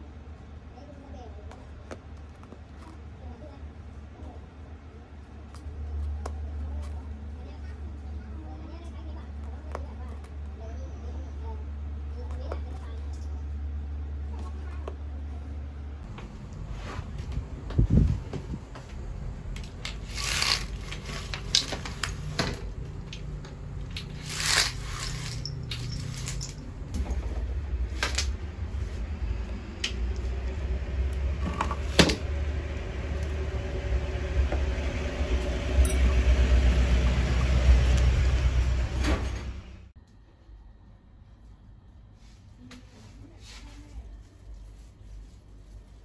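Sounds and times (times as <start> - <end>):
low rumble: 13.3 - 40.0.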